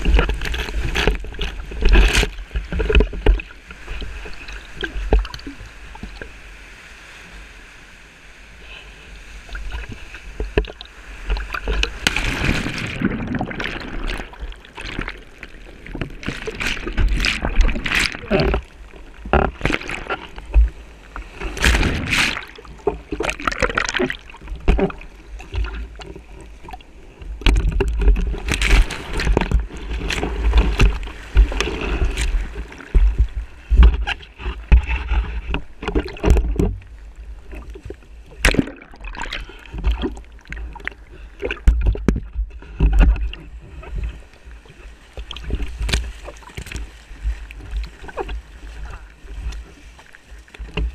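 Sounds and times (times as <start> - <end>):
surf splashing against paddleboard: 0.0 - 7.5, 9.3 - 50.9
low rumbling surf: 0.0 - 50.9.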